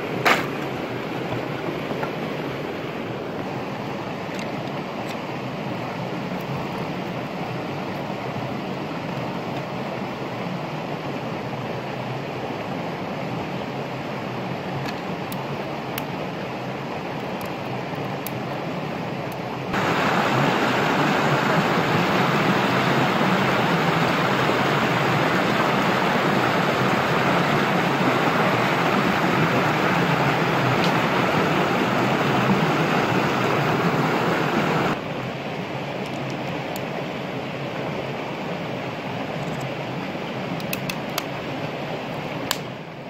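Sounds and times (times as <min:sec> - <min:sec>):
water rushing down rocky cascade: 0:19.7 - 0:35.8.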